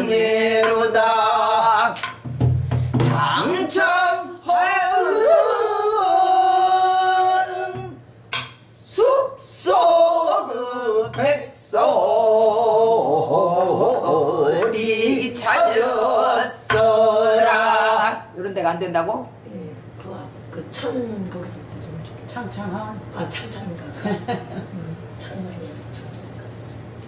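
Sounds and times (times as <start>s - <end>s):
woman singing: 0.0s - 2.1s, 3.1s - 8.0s, 8.9s - 18.4s.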